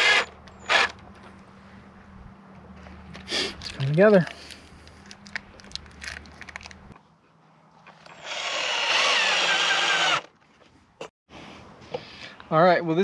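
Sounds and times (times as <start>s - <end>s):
power drill driving a screw into wood: 0.0s - 1.0s, 8.1s - 10.3s.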